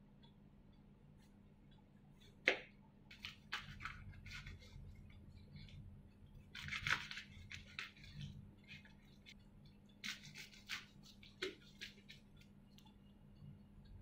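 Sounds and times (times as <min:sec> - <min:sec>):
knife cutting crisp lettuce: 0:03.1 - 0:05.8, 0:06.4 - 0:12.5.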